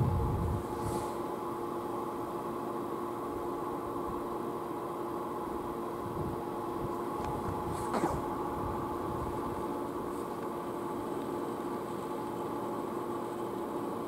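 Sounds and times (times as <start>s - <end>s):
electric train hum: 0.0s - 14.0s
light hiss: 0.6s - 1.4s.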